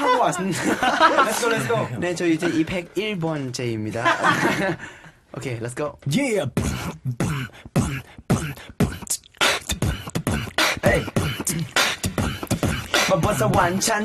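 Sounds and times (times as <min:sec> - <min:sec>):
person beatboxing: 0:06.4 - 0:14.0.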